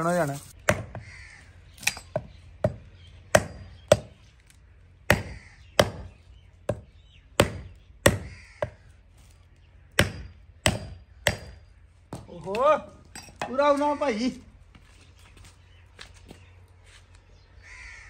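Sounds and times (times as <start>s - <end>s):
hatchet chopping branches: 0.2s - 1.1s, 1.8s - 8.8s, 9.9s - 12.8s.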